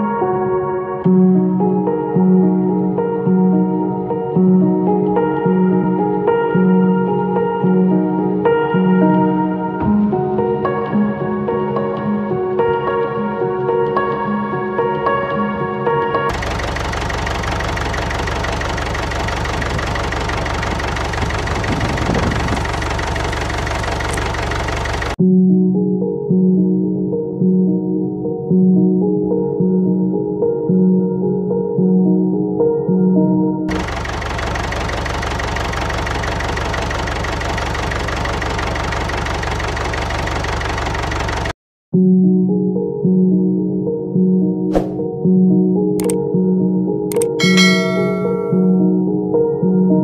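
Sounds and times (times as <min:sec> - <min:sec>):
tractor engine idling: 0:16.3 - 0:25.2, 0:33.7 - 0:41.5, 0:47.4 - 0:48.7.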